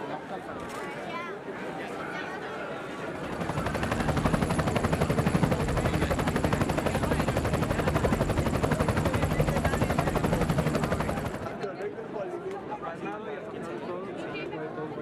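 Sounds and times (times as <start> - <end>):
helicopter rotor blades chopping: 3.0 - 11.6.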